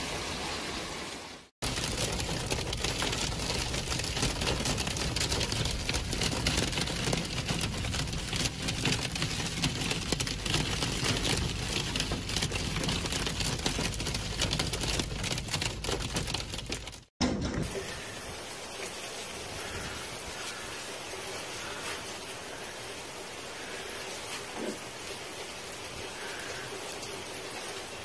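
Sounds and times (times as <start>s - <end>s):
hail and rain on car: 1.6s - 17.1s.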